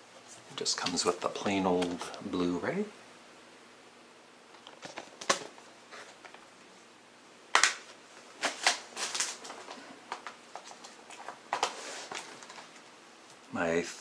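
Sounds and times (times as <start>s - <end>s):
plastic cases clicking: 4.6s - 5.5s
rustling: 7.8s - 13.5s.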